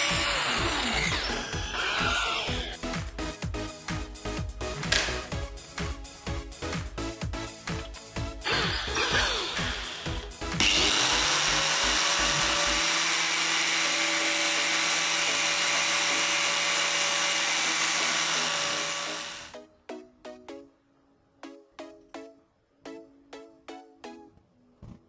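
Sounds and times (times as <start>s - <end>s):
angle grinder grinding metal rod: 0.0s - 2.8s, 8.5s - 19.5s.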